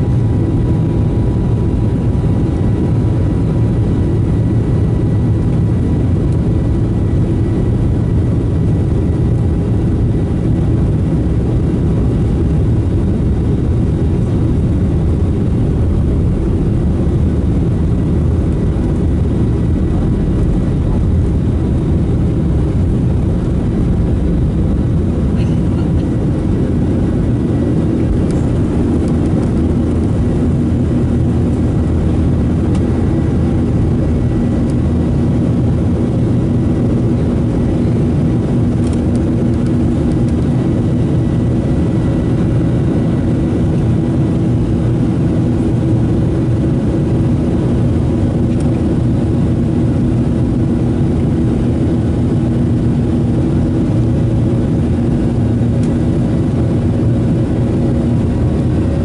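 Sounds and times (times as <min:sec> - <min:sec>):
jet engines roaring: 0:00.0 - 0:59.0
runway rumble: 0:09.6 - 0:38.0.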